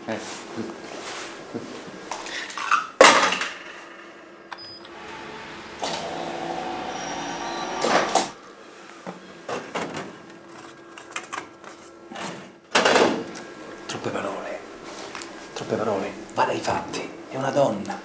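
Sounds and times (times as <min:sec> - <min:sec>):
vending machine motor running: 0:04.9 - 0:08.4.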